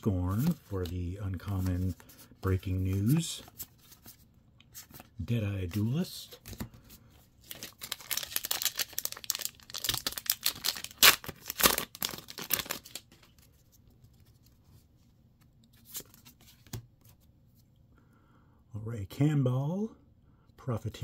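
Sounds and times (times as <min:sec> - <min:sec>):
foil wrapper tearing and crinkling: 0:07.5 - 0:13.0.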